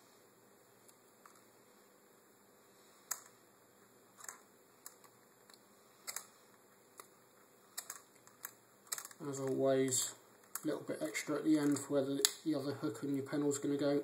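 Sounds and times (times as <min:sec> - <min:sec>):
small handling clicks: 0:07.8 - 0:12.4.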